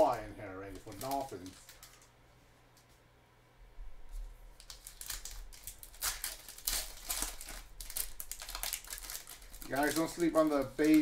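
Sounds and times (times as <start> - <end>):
foil wrapper crinkling: 0.0 - 2.2, 4.6 - 11.0.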